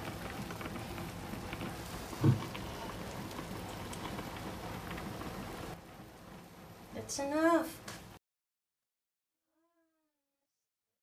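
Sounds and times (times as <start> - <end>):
food sizzling in a frying pan: 0.0 - 8.2.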